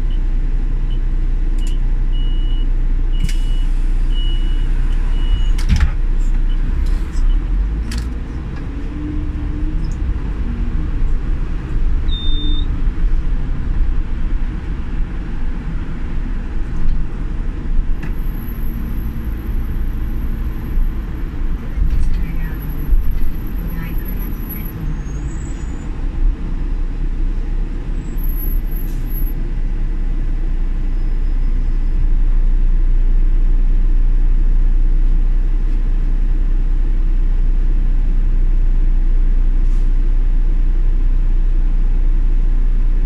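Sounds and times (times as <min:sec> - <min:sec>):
bus engine and road rumble: 0:00.0 - 0:43.0
short beeps: 0:01.6 - 0:05.6, 0:12.1 - 0:12.7.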